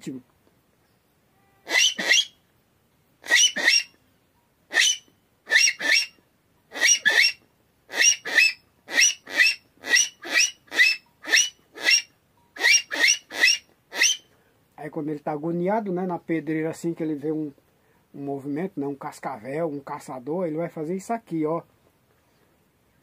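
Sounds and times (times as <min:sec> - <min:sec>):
raspy animal call whistle: 0:01.4 - 0:02.4, 0:03.2 - 0:04.0, 0:04.7 - 0:14.3.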